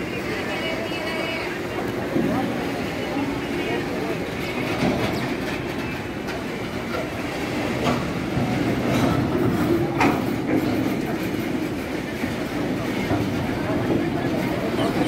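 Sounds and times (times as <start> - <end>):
train wheels rumbling on rail: 0.0 - 15.0
rail joint clicks: 4.4 - 15.0.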